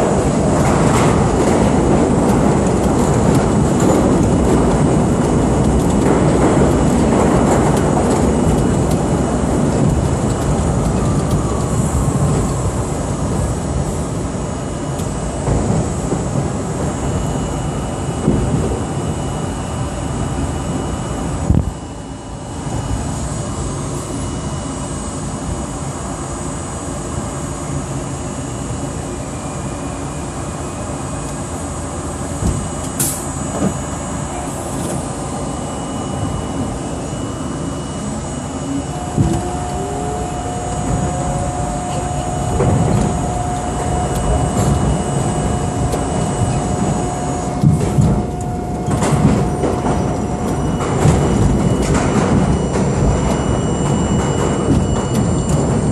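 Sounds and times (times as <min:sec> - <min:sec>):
subway train motor whine: 0:00.0 - 0:55.9
train wheel rumble and clatter: 0:00.0 - 0:55.9.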